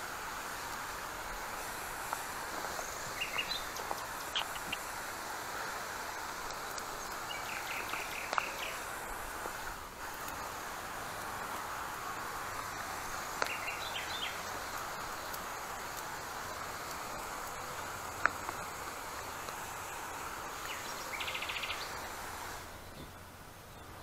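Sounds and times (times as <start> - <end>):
sprayer nozzle hissing: 0.0 - 23.4
bird chirping: 2.8 - 4.9, 7.0 - 8.8, 13.4 - 14.5, 20.6 - 22.1.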